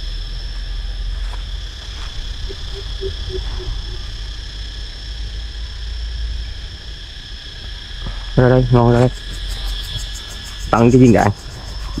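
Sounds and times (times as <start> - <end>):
high drone of insects: 0.0 - 12.0
bird deep hooting calls: 2.1 - 4.6.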